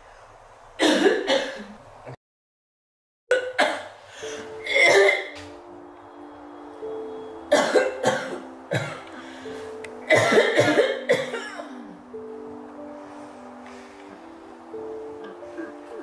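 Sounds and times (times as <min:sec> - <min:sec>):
soft background music: 0:03.3 - 0:16.0
person coughing: 0:04.6 - 0:05.4, 0:07.5 - 0:09.0, 0:10.1 - 0:12.0.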